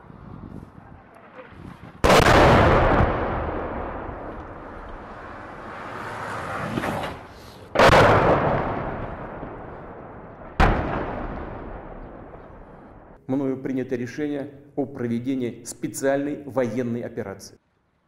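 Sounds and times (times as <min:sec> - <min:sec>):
echoing rumble: 0:01.1 - 0:06.0, 0:07.8 - 0:13.2
explosion blasts: 0:01.4 - 0:05.9, 0:07.7 - 0:13.2.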